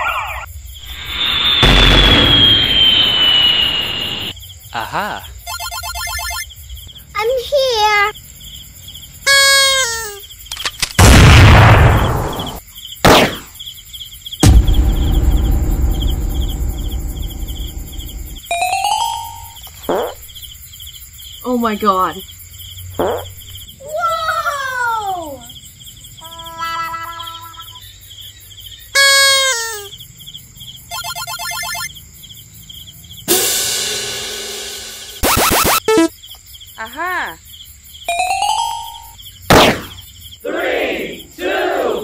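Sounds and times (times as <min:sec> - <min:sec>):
night insects chirping: 0:00.0 - 0:42.0
falling whoosh: 0:00.8 - 0:04.3, 0:14.4 - 0:18.4
loud rushing bursts: 0:00.8 - 0:04.3, 0:14.4 - 0:18.4
loud gliding pitched sound: 0:14.4 - 0:18.4
rapid pulsed warble: 0:14.4 - 0:18.4.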